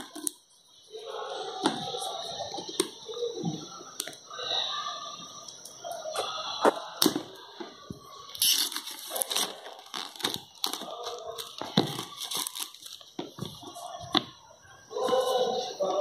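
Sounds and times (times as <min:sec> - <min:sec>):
plastic wrap crinkling and tearing: 0:08.3 - 0:14.0.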